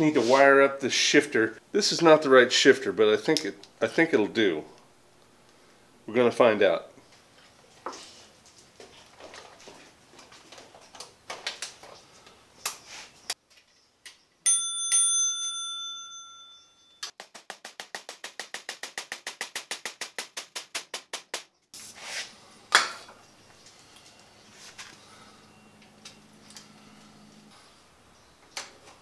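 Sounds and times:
metallic bell-like ring: 0:14.4 - 0:17.1.

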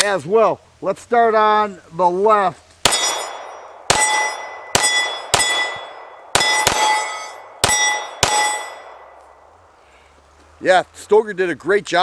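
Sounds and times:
pistol shots: 0:02.8 - 0:09.1
steel gong target clanging: 0:02.9 - 0:09.1.

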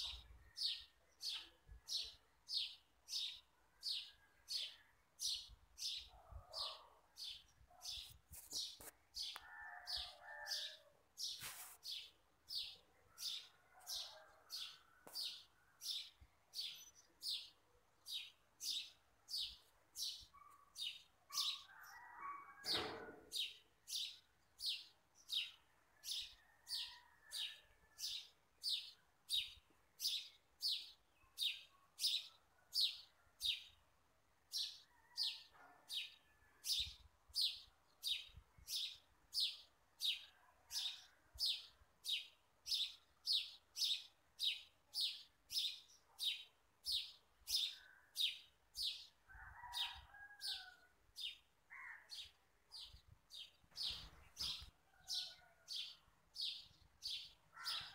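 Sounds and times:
bird chirping: 0:52.1 - 0:57.9.

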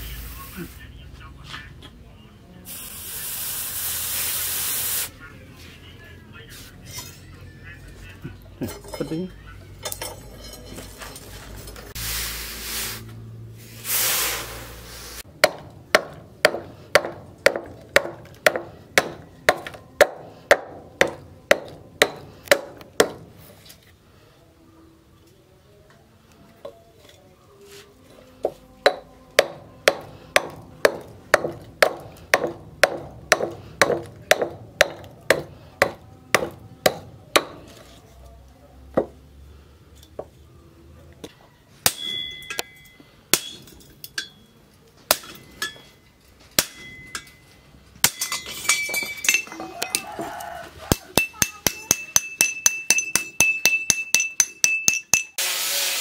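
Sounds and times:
short bursts of hiss: 0:02.7 - 0:05.2, 0:12.0 - 0:15.3
cleaver chopping wooden block: 0:15.4 - 0:23.3, 0:28.8 - 0:37.7.

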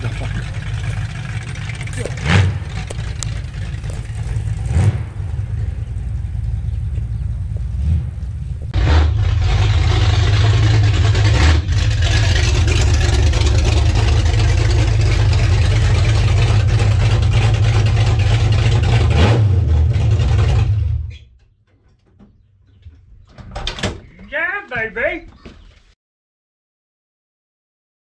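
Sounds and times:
loud v-eight engine running: 0:00.0 - 0:21.1.

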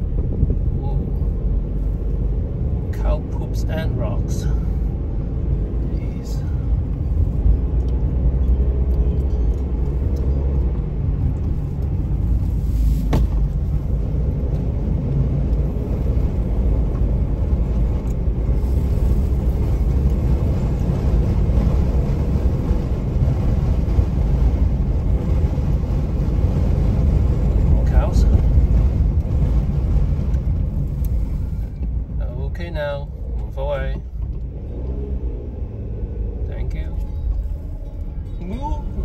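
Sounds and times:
car engine and tyres rumbling: 0:00.0 - 0:39.0.

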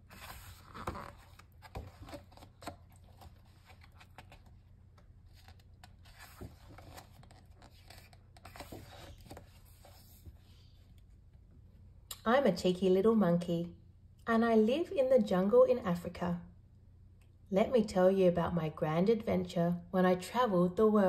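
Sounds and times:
paper rustling: 0:00.0 - 0:04.6, 0:05.2 - 0:10.4.

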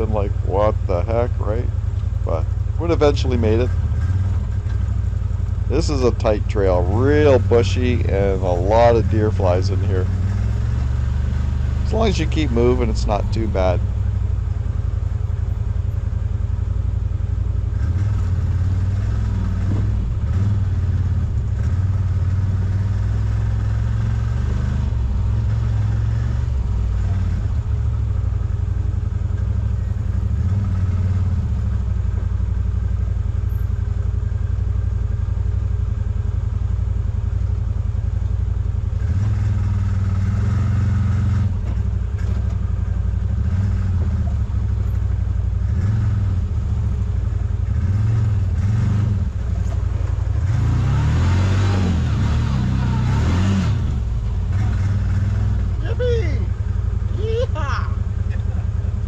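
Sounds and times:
utility vehicle engine running: 0:00.0 - 0:59.0.

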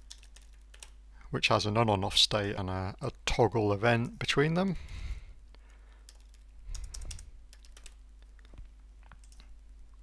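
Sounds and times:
computer keyboard typing: 0:00.0 - 0:01.0, 0:06.0 - 0:08.5, 0:09.2 - 0:09.5.

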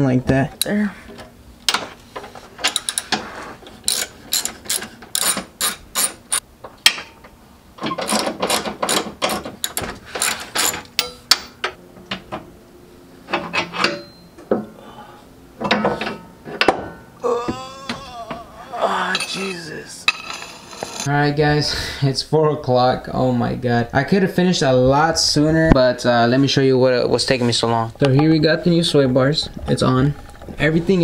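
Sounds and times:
ratchet wrench clicking: 0:03.9 - 0:06.4.

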